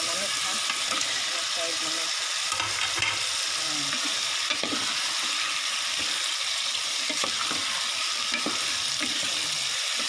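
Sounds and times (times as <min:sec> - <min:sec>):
sauce sizzling in a pot: 0:00.0 - 0:10.0.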